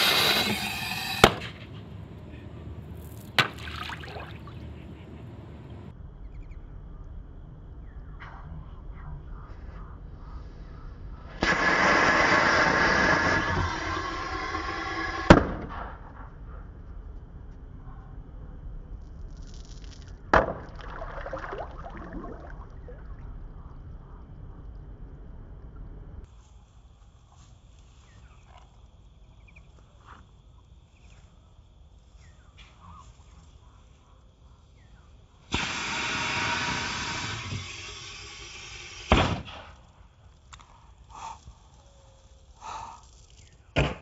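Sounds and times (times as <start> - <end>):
firecracker bang: 0.0 - 1.7, 11.4 - 15.8, 35.5 - 37.8, 38.5 - 39.8
pond water lapping: 3.2 - 5.9, 20.6 - 23.2.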